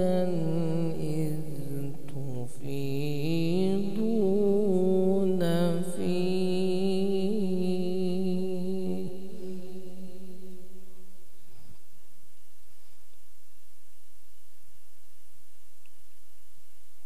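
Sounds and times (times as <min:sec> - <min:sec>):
man reciting melodically into microphone: 0:00.0 - 0:11.1.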